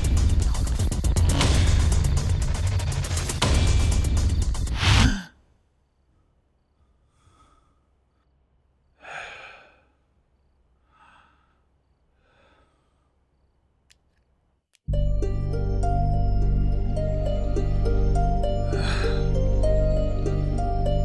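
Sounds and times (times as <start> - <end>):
man breathing heavily and sighing: 6.2 - 8.2, 9.0 - 10.2, 10.8 - 13.3, 18.4 - 19.7.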